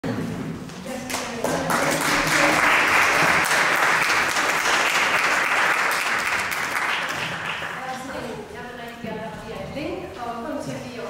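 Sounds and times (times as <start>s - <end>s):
people clapping: 0.8s - 8.2s.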